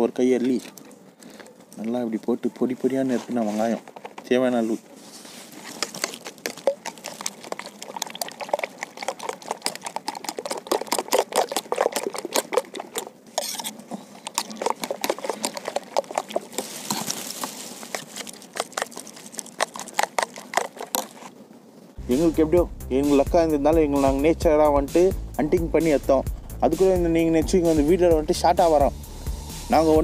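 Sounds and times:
egg mixture sloshing: 0:05.5 - 0:21.3.

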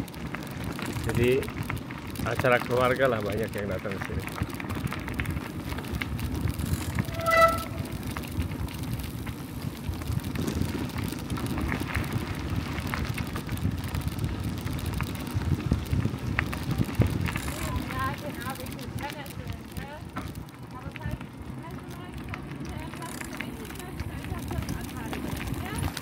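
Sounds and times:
bicycle tyres rumbling on gravel: 0:00.0 - 0:26.0
faint clicks: 0:21.9 - 0:26.0.

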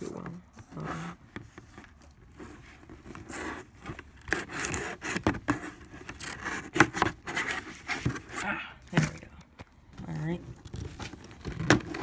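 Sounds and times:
cardboard rubbing and scraping: 0:00.0 - 0:08.4.

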